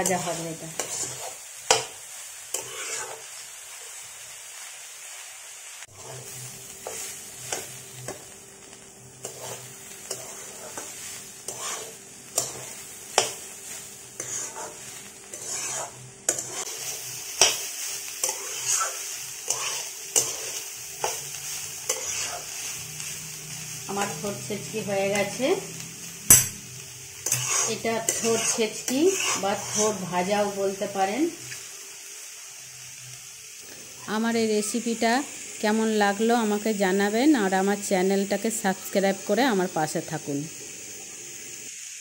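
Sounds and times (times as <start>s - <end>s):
spatula scraping a pan: 0.0s - 3.4s, 5.9s - 8.3s, 9.2s - 25.4s, 27.2s - 30.8s
oil sizzling: 0.0s - 42.0s.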